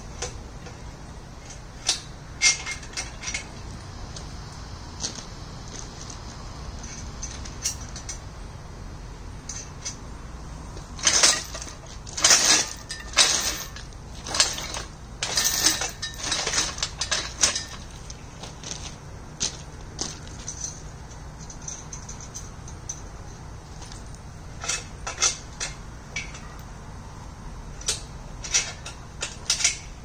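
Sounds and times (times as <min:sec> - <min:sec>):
hoist crunching over gravel: 0:00.0 - 0:08.3, 0:10.7 - 0:26.6
chain clinking against metal frame: 0:01.4 - 0:04.3, 0:06.8 - 0:08.3, 0:09.5 - 0:10.0, 0:11.0 - 0:26.8, 0:27.8 - 0:30.0.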